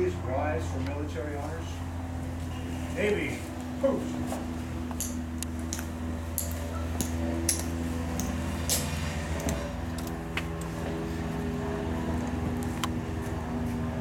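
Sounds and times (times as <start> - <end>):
steady low hum: 0.0 - 14.0
hard-soled footsteps on concrete: 3.4 - 11.5.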